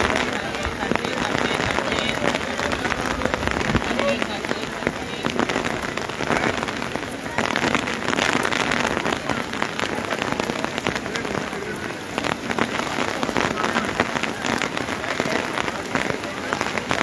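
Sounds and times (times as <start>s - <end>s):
heavy rain on pavement: 0.0s - 17.0s.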